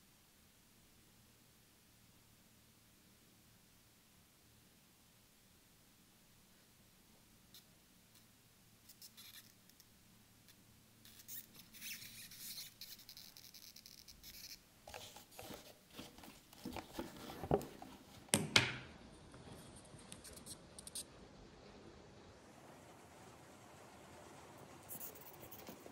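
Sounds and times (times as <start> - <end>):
rubbing on watch strap: 11.0 - 18.0.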